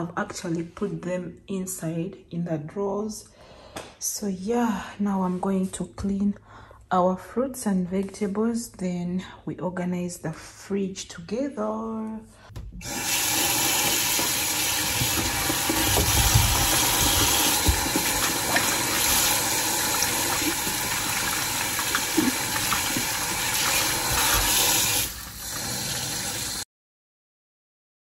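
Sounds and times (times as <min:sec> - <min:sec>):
hands rinsing vegetables: 0:12.8 - 0:26.6
tap water running into sink: 0:12.8 - 0:26.6.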